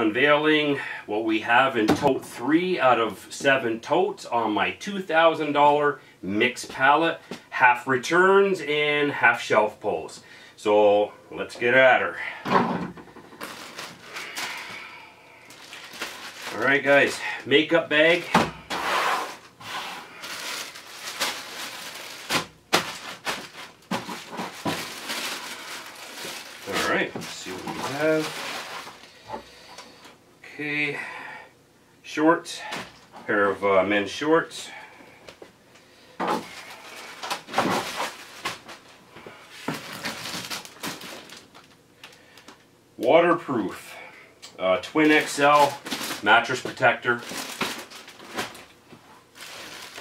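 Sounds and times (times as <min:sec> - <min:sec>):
plastic packaging crinkling: 0:13.2 - 0:18.3, 0:19.3 - 0:29.2, 0:36.4 - 0:39.0, 0:39.6 - 0:42.6, 0:44.9 - 0:50.0.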